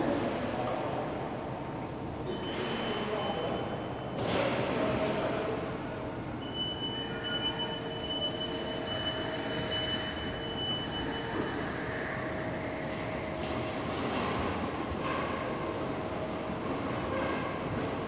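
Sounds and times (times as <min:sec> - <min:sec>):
high steady squeal: 0:02.2 - 0:04.2, 0:05.6 - 0:18.0
rolling mechanical rumble: 0:04.8 - 0:18.0.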